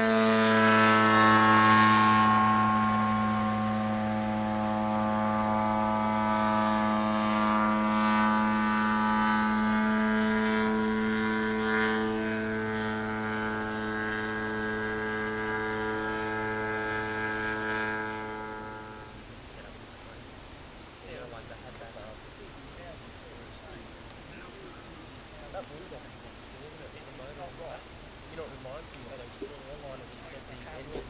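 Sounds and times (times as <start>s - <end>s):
model plane engine drone: 0.0s - 20.2s.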